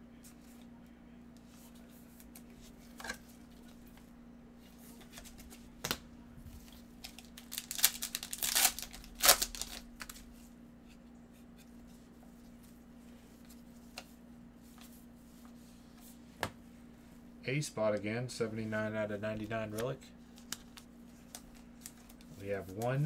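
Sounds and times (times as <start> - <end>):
foil wrapper crinkling and tearing: 7.0 - 10.2.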